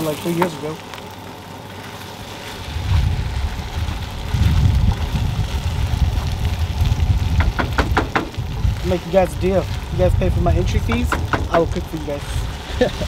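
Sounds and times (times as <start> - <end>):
rice sizzling in a pan: 0.0 - 13.0
wind rumbling on microphone: 2.0 - 13.0
wooden spatula clicking on pan: 10.9 - 11.6.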